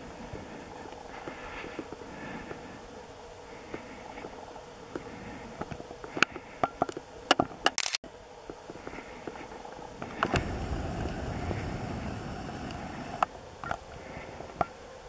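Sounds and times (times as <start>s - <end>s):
handling rumble: 8.5s - 14.6s.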